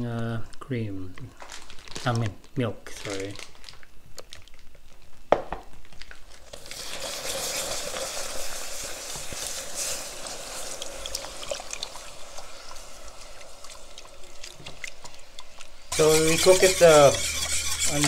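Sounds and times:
milk sizzling in hot pan: 0:06.4 - 0:18.0
whisk clicking against pan: 0:16.0 - 0:18.0.

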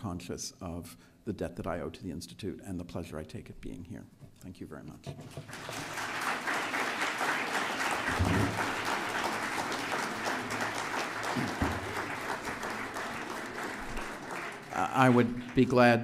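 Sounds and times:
crowd applauding: 0:05.4 - 0:16.0.

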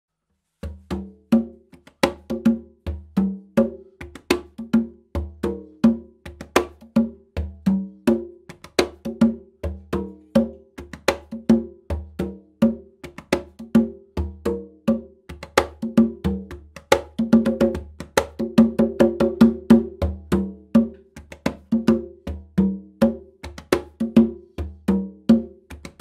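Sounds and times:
congas played by hand: 0:00.4 - 0:26.0.

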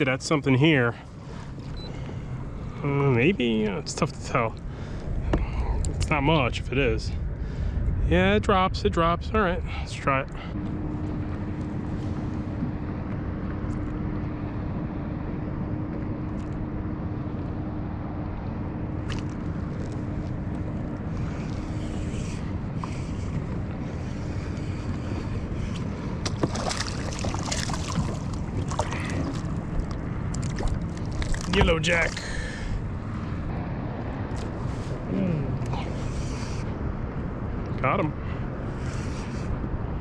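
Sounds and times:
faint steady hum: 0:00.0 - 0:40.0
water noise: 0:00.0 - 0:40.0
wind: 0:00.0 - 0:40.0
water splashes: 0:19.0 - 0:32.8.

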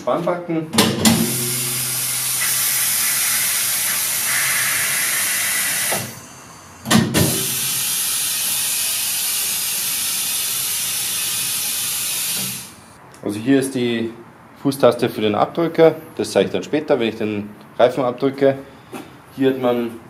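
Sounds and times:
compressed air hissing: 0:01.2 - 0:13.0.

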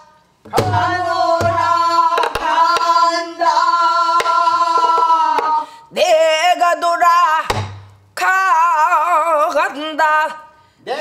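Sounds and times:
woman singing folk song: 0:00.5 - 0:07.6, 0:08.2 - 0:10.6.

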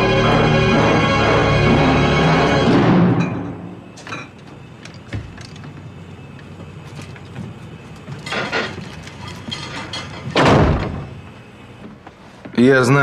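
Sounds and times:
refrigerator hum: 0:00.0 - 0:13.0
food containers clinking: 0:07.9 - 0:10.4.

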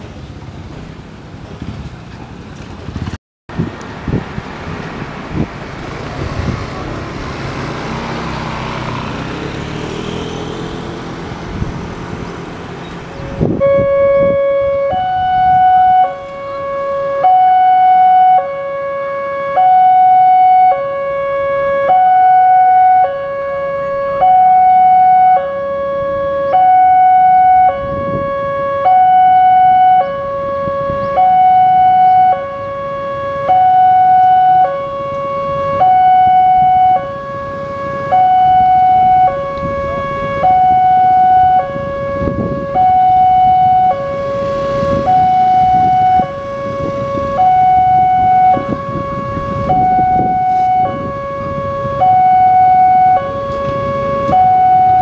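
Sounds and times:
two-tone level-crossing alarm: 0:13.4 - 0:55.0.

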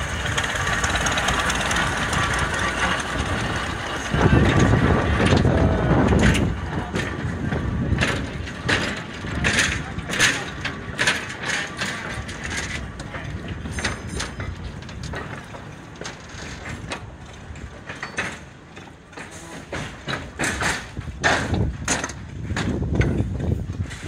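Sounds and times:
low rumble: 0:00.0 - 0:10.8
railway wagons rolling past: 0:00.0 - 0:24.0
wheels and couplings clanking: 0:00.0 - 0:24.0.

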